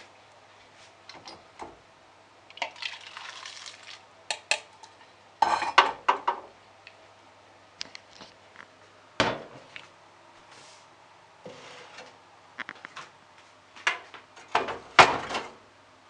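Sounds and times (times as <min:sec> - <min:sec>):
soup pouring into bowl: 0:02.5 - 0:04.0
pot and bowl clattering: 0:04.3 - 0:06.4.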